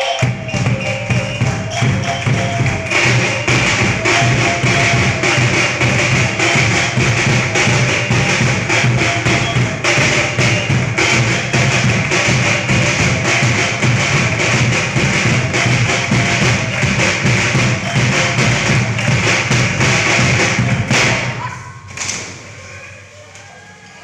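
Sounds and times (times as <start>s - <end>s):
boys clapping hands: 0.0s - 7.0s, 11.4s - 21.4s
small drum beaten with sticks: 0.0s - 21.4s.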